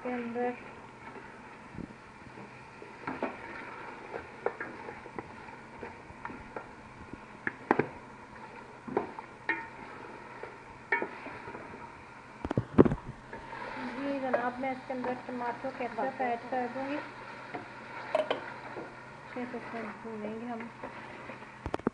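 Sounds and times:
frying hiss: 0:00.0 - 0:21.8
spoon knocking and scraping pot: 0:09.0 - 0:09.8, 0:10.9 - 0:11.2, 0:17.5 - 0:18.9.

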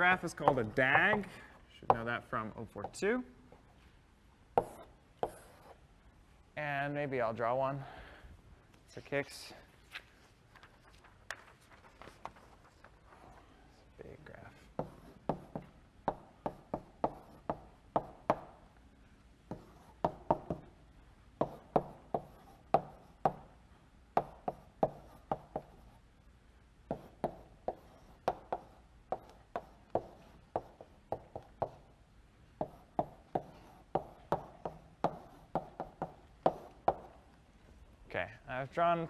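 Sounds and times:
chalk tapping on a blackboard: 0:01.9 - 0:02.1, 0:04.6 - 0:05.8, 0:14.8 - 0:18.6, 0:19.5 - 0:20.7, 0:21.4 - 0:23.5, 0:24.2 - 0:26.0, 0:26.9 - 0:31.9, 0:32.6 - 0:37.2.

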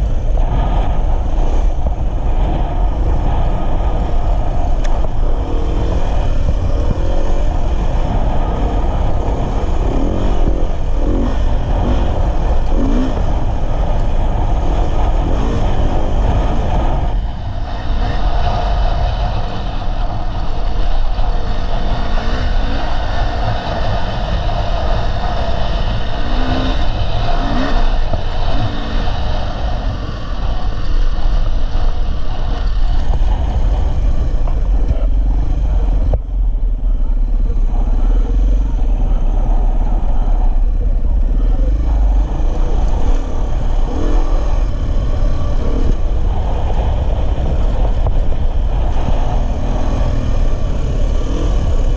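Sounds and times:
dirt bike engine: 0:00.0 - 0:51.9.

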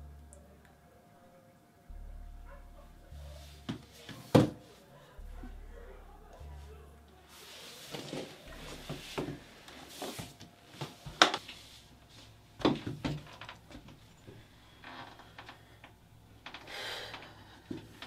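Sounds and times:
knocks clicks and rustles: 0:12.6 - 0:18.0.

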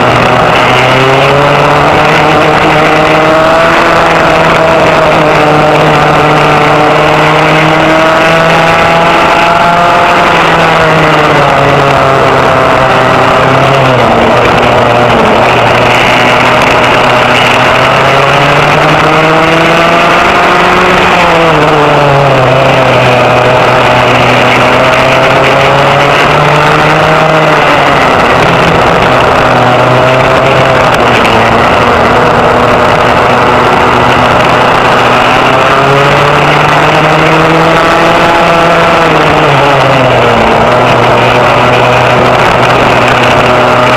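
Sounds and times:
racing kart engine revving: 0:00.0 - 0:43.9.

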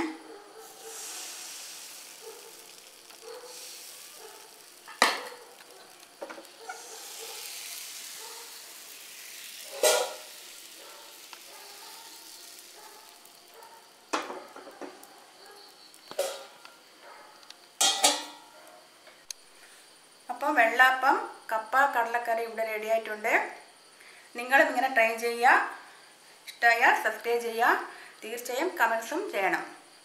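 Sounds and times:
batter sizzling in a hot pan: 0:00.6 - 0:20.5
cookware knocking: 0:17.8 - 0:18.4.

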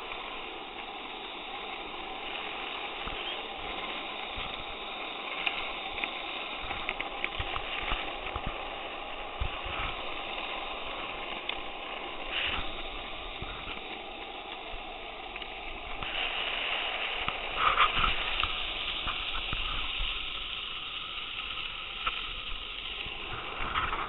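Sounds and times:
skateboard wheels rolling on asphalt: 0:00.0 - 0:24.0.

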